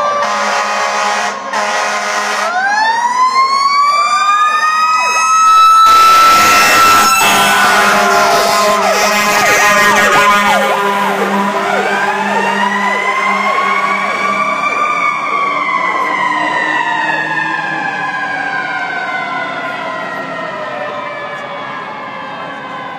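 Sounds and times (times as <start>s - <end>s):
fire truck sirens: 0.0s - 22.9s.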